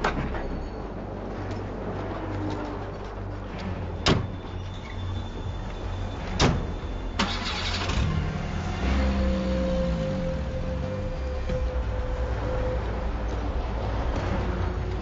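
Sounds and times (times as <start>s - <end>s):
car engine starting and running: 6.2s - 12.3s.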